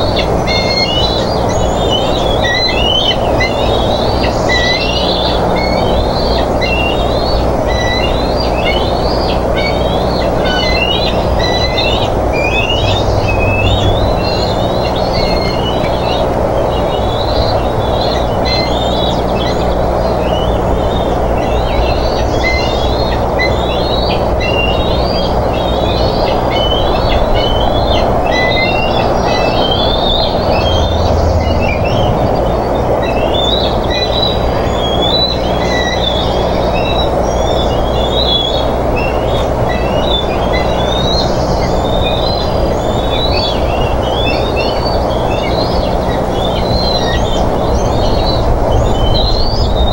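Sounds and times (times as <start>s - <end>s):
high chittering bird calls: 0.0s - 49.9s
rushing background noise: 0.0s - 49.9s.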